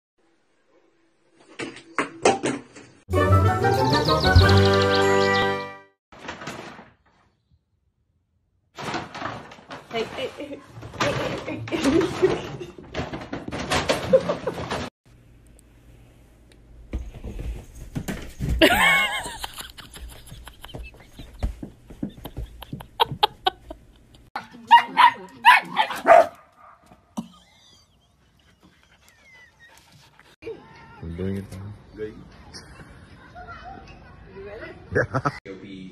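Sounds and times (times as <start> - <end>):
dog barking: 24.4 - 26.8.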